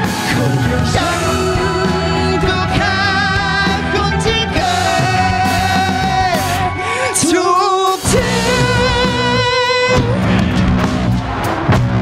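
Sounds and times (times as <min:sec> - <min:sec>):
bass guitar: 0:00.0 - 0:12.0
drums: 0:00.0 - 0:12.0
electric guitar: 0:00.0 - 0:12.0
rock band playing live: 0:00.0 - 0:12.0
woman singing with vibrato: 0:00.4 - 0:10.3.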